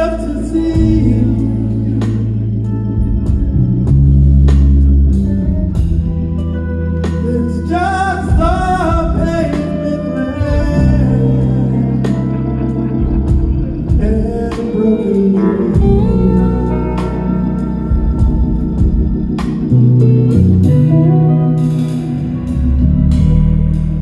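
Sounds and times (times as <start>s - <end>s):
man singing: 0.0s - 3.0s, 7.0s - 18.9s
deep bass guitar notes: 0.0s - 24.0s
live rock band playing: 0.0s - 24.0s.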